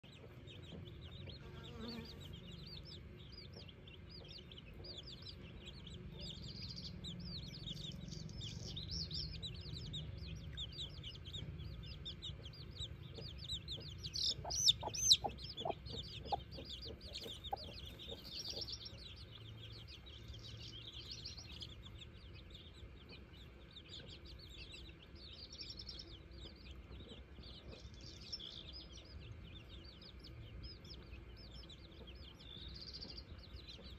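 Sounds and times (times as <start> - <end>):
chicks peeping: 0.0 - 33.9
hen clucking: 10.8 - 19.5.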